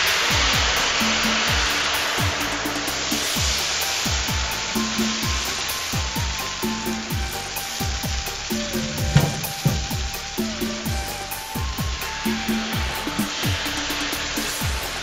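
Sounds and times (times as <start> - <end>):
background music with bass drum: 0.0 - 15.0
batter sizzling in hot oil: 0.0 - 15.0
knock: 9.0 - 10.0.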